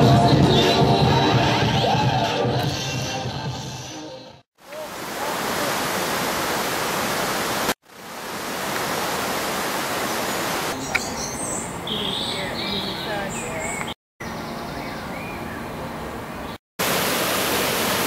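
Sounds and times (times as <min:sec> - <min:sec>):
river water over rapids: 0:04.6 - 0:10.8, 0:16.8 - 0:18.0
birds chirping: 0:10.1 - 0:16.6.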